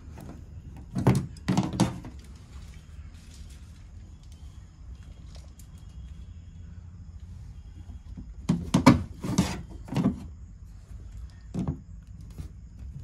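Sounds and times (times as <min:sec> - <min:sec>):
low steady hum: 0:00.0 - 0:13.0
plastic knocking and scraping: 0:00.1 - 0:02.2, 0:08.0 - 0:10.3, 0:11.3 - 0:13.0.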